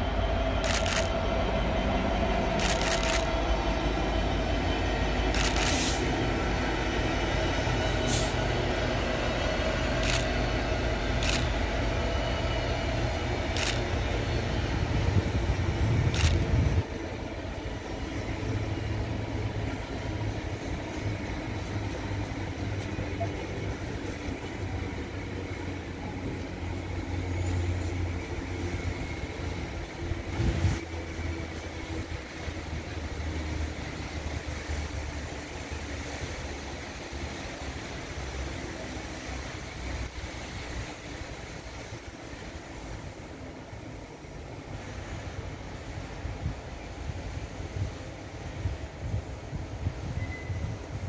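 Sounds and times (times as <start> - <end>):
diesel locomotive engines running: 0.0 - 51.0
rail wagons rolling rumble: 0.0 - 51.0
sharp clicks: 0.6 - 1.1.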